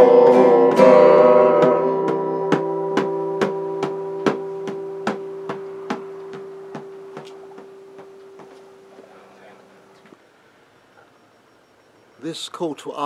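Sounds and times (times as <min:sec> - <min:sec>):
acoustic guitar chord ringing: 0:00.0 - 0:09.9.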